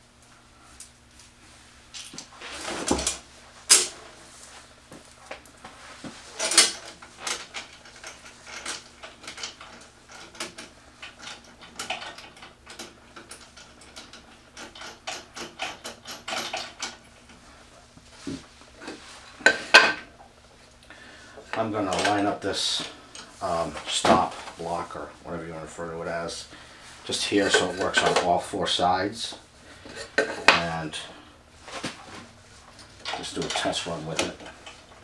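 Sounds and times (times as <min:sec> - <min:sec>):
metal clicks and rattles: 0:06.4 - 0:17.3.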